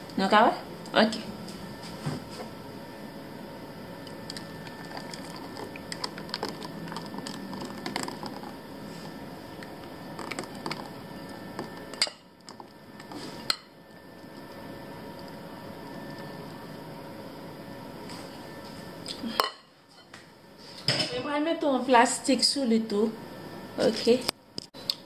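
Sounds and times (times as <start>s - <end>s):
thick mixture pouring: 4.2s - 8.6s, 9.6s - 11.9s.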